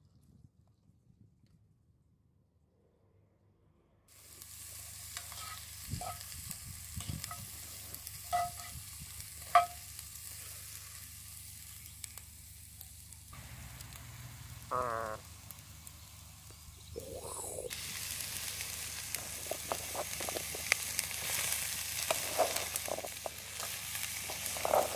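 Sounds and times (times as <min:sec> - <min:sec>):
onions sizzling in hot oil: 0:04.1 - 0:24.9
wooden spoon knocking and scraping pan: 0:08.3 - 0:08.8, 0:09.5 - 0:09.8.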